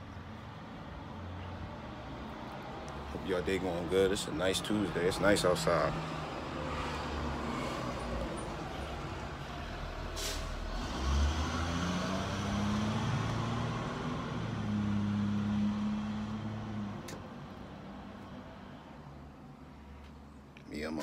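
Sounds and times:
short hiss: 10.2s - 10.6s.

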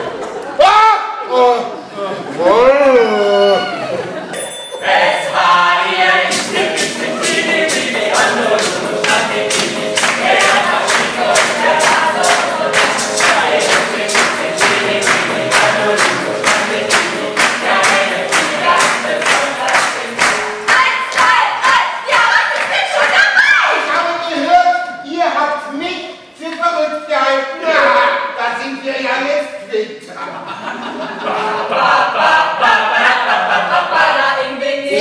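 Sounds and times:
group of voices singing: 2.2s - 23.9s, 27.6s - 28.4s, 31.1s - 35.0s
hands clapping in time: 6.3s - 21.4s.

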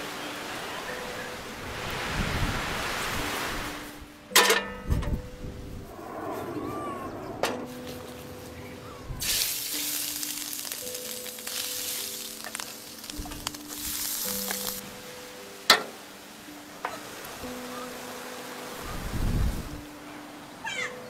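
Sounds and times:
meat sizzling in a hot pan: 9.2s - 14.8s.

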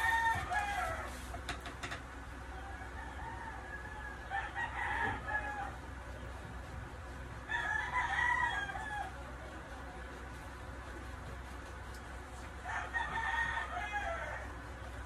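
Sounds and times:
rooster crowing: 0.0s - 1.3s, 2.5s - 5.8s, 7.4s - 9.2s, 12.6s - 14.6s.

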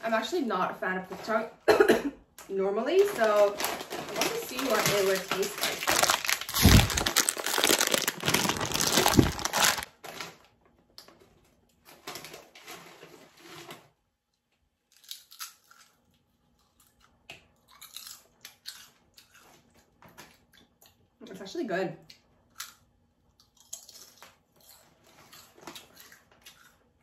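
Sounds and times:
foil chip bag crinkling: 2.9s - 10.5s.

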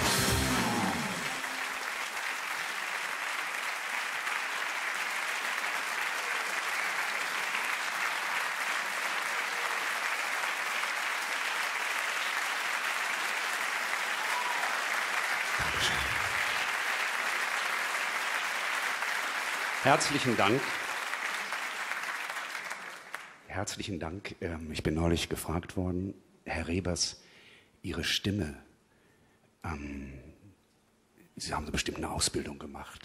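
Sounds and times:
intro music: 0.0s - 1.6s
audience applauding: 0.0s - 23.4s.

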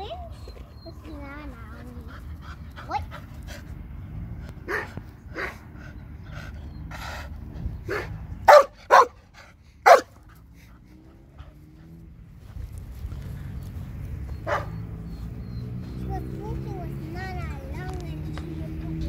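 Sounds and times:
small dog barking: 7.9s - 9.2s, 9.9s - 10.1s, 14.4s - 14.8s.

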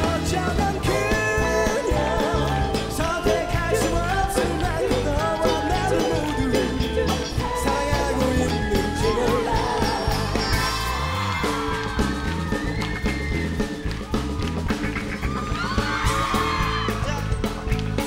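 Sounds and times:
man singing: 0.0s - 10.8s
live pop-rock band playing: 0.0s - 18.0s.

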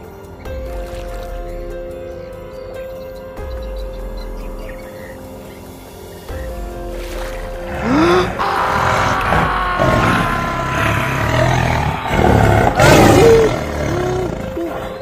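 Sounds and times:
background music: 0.0s - 15.0s
animal roars: 7.7s - 15.0s.

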